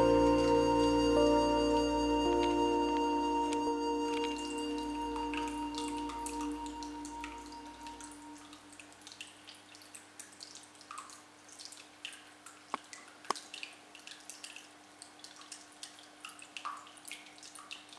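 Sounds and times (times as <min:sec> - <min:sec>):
faint steady hum: 0:00.0 - 0:13.2
water dripping: 0:00.0 - 0:17.9.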